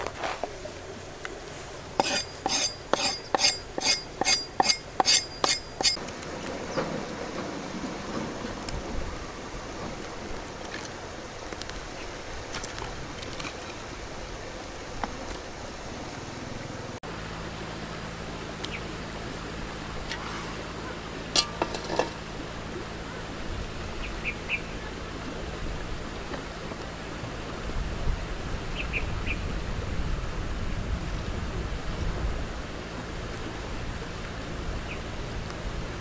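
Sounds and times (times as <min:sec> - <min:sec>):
outdoor fire noise: 0:00.0 - 0:22.8
sticks knocking: 0:02.0 - 0:06.0.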